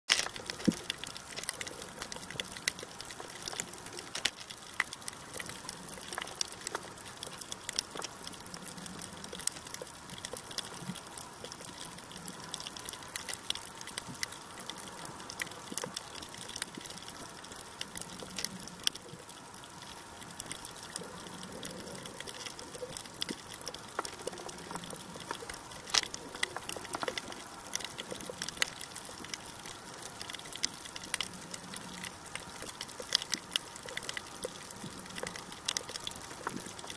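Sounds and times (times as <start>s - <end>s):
sharp clicks and crackles: 0.1s - 36.9s.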